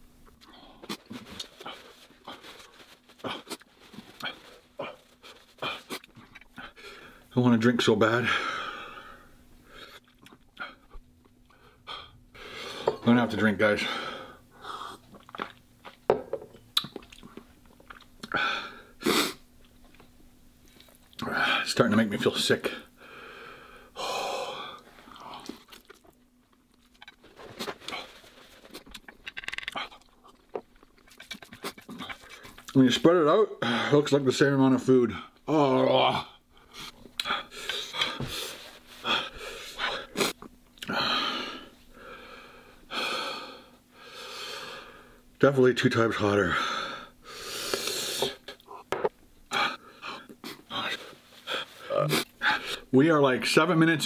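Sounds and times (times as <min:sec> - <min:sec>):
chewing: 0:15.0 - 0:16.0, 0:16.8 - 0:18.3, 0:25.1 - 0:32.8
man blowing nose: 0:18.4 - 0:19.4, 0:47.2 - 0:48.6
man sniffing: 0:19.0 - 0:19.4
hissing breath: 0:46.6 - 0:48.6.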